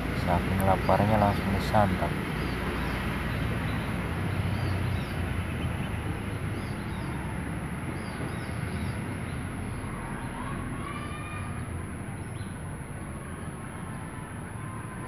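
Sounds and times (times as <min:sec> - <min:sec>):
small birds chirping: 0:00.0 - 0:07.3
outdoor rumble and hiss: 0:00.0 - 0:15.0.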